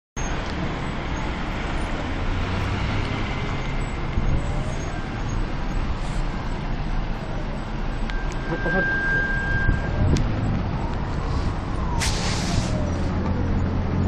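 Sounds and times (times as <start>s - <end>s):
outdoor rumbling noise: 0.2s - 14.0s
faint rising whine: 7.5s - 11.8s.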